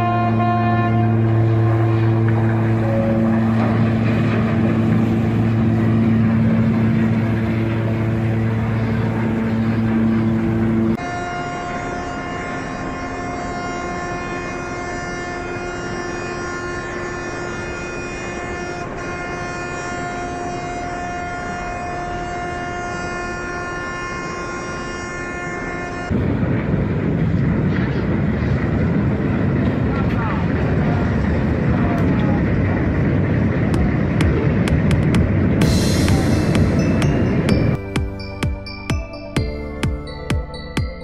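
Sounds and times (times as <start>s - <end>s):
higher steady tone: 0.0s - 13.0s, 33.7s - 41.0s
ship horn deep blast: 0.0s - 26.4s, 29.8s - 40.7s.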